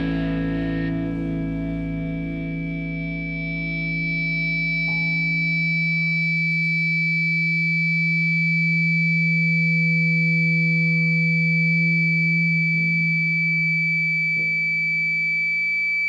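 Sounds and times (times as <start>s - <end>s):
droning instrumental chord: 0.0s - 8.6s.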